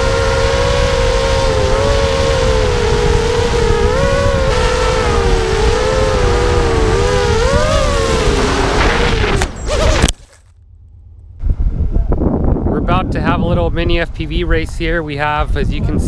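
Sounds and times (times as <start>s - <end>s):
quadcopter motors and propellers whining: 0.0s - 10.5s
low rumble of wind: 0.0s - 16.0s.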